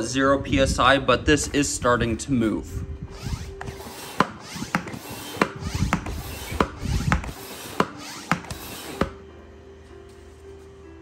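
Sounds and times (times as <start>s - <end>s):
hand pump rush of air: 3.1s - 9.2s
pump handle clicking: 3.6s - 9.2s.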